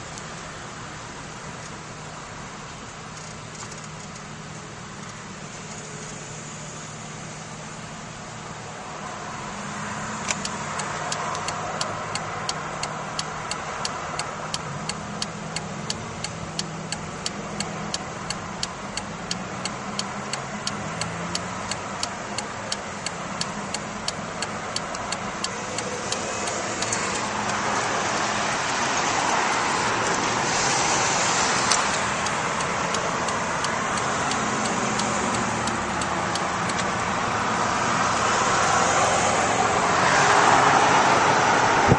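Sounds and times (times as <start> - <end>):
car cabin road noise: 0.0 - 41.9
turn signal ticking: 10.2 - 37.6.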